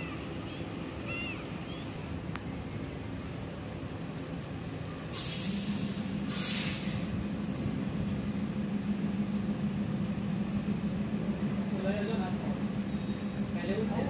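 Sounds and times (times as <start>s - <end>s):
train rolling hum: 0.0s - 14.0s
train air brakes hissing: 5.0s - 7.2s.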